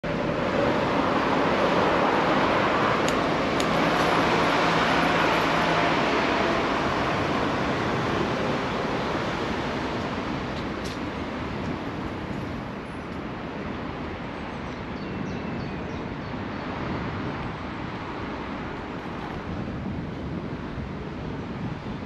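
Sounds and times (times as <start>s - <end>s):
low engine hum: 0.0s - 14.5s
road traffic: 0.0s - 22.0s
wind on microphone: 0.0s - 22.0s.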